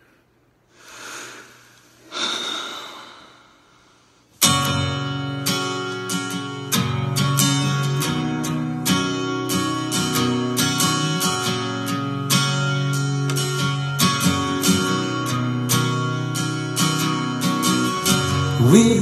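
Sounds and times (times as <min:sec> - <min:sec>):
breathy swells of noise: 0:00.7 - 0:04.3
strummed acoustic guitar: 0:04.4 - 0:19.0.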